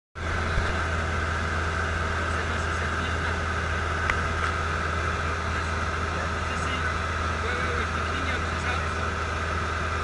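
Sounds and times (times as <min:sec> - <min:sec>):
light aircraft engine drone: 0:00.2 - 0:10.0.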